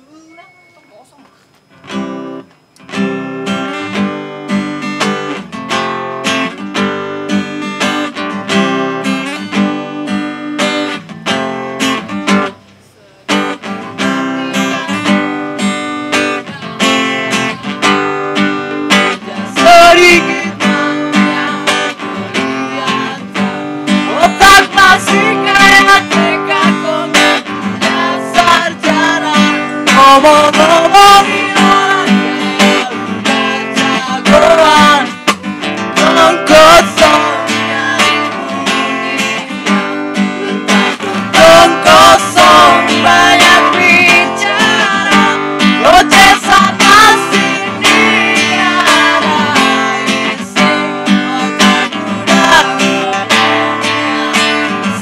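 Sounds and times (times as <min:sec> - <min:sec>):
acoustic guitar strumming: 0:00.1 - 0:55.0
person singing: 0:18.9 - 0:23.4, 0:24.0 - 0:55.0.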